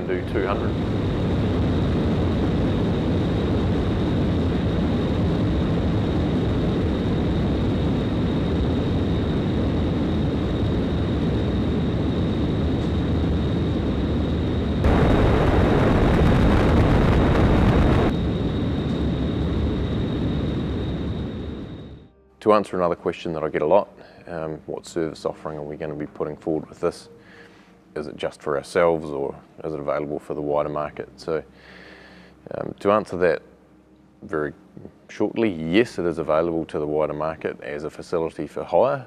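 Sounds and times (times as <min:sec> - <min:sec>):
wind tunnel rushing wind: 0:00.0 - 0:22.1
high whine: 0:00.0 - 0:27.2.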